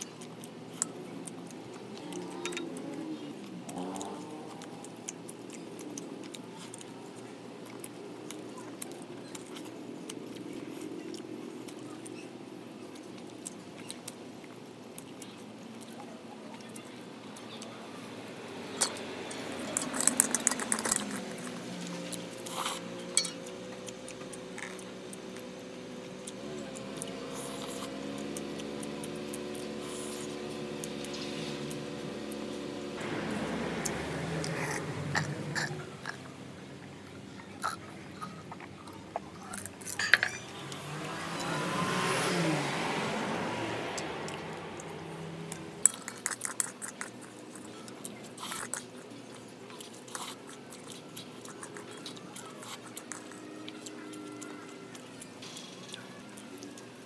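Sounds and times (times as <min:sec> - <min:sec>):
chewing and mouth sounds: 0:00.0 - 0:57.0
skewers and metal dishes clattering: 0:01.8 - 0:03.2, 0:18.6 - 0:23.9, 0:37.4 - 0:41.6
low steady hum: 0:04.4 - 0:57.0.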